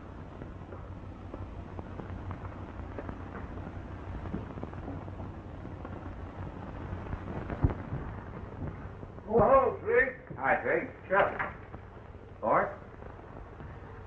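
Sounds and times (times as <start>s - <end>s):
film soundtrack hum and hiss: 0.0s - 14.0s.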